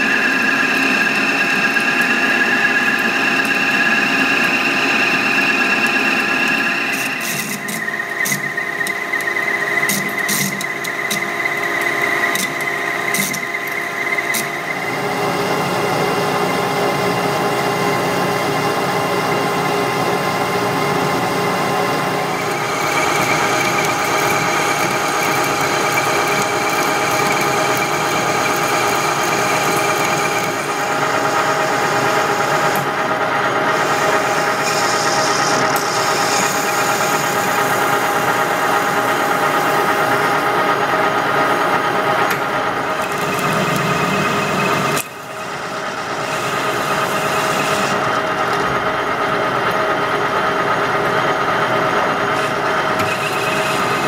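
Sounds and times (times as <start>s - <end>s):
tool cutting steel: 0.0s - 14.8s, 33.6s - 40.5s, 52.4s - 54.0s
metal lathe whine: 0.0s - 54.0s.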